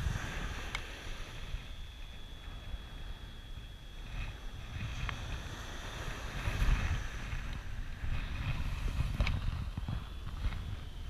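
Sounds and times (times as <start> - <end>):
surf hissing: 0.0 - 3.4
wind buffeting the microphone: 0.0 - 11.0.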